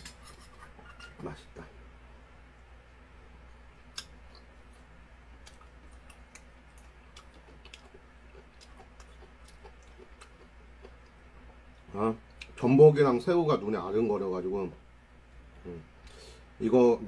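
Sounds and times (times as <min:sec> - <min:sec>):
steady low hum: 0:00.0 - 0:17.0
man chewing noodles: 0:05.4 - 0:12.5.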